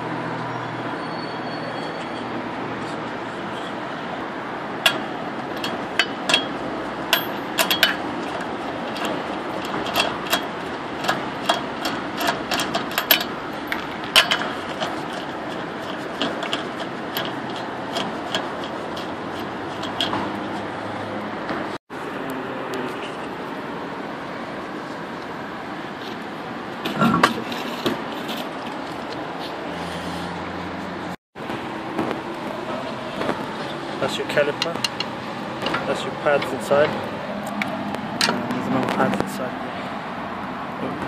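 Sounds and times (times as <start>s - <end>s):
steady background noise: 0.0s - 41.0s
wheel nuts clicking and clinking: 4.8s - 20.7s, 33.2s - 39.3s.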